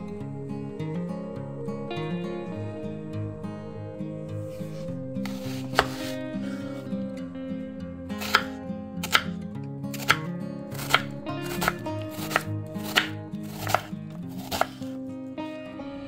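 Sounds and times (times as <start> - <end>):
soft background music: 0.0 - 16.0
knife dicing onion on board: 5.3 - 6.2, 8.2 - 9.3, 10.0 - 14.9.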